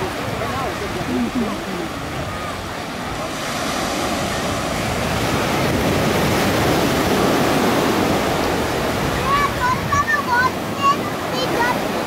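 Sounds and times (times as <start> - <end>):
ocean surf washing up beach: 0.0 - 12.0.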